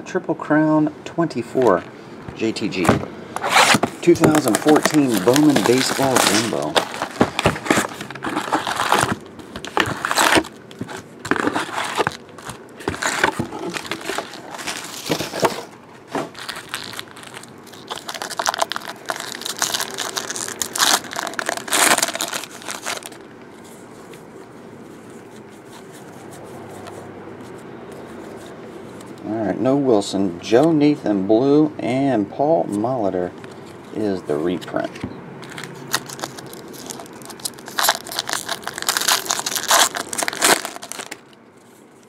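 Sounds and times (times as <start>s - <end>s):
wrappers crinkling and tearing: 3.4s - 23.2s, 35.4s - 41.8s.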